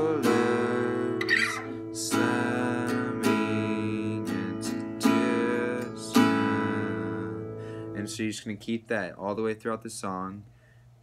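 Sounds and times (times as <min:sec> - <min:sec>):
acoustic guitar strumming: 0:00.0 - 0:08.2.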